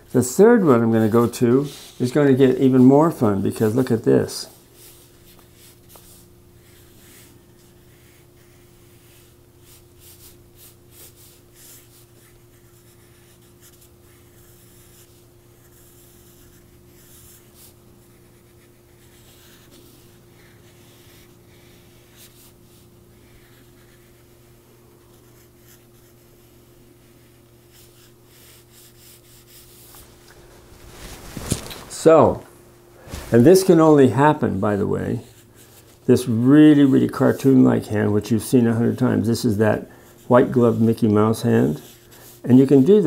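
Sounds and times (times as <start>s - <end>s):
pencil sketching on paper: 0.9s - 4.0s, 4.8s - 24.4s, 25.1s - 30.0s, 34.7s - 43.0s.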